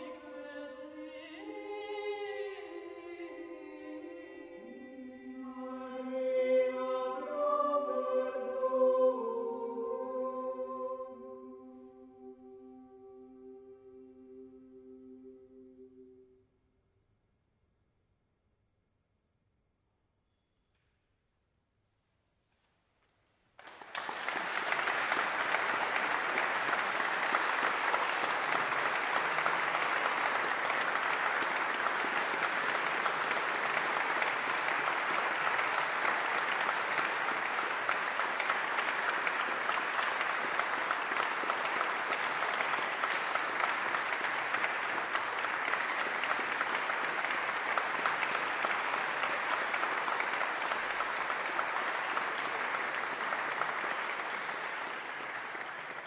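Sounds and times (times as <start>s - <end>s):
audience applauding: 23.6s - 56.0s.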